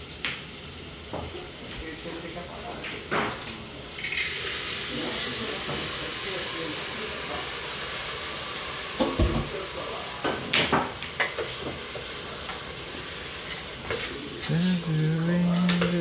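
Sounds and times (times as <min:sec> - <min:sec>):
background hiss: 0:12.2 - 0:16.0.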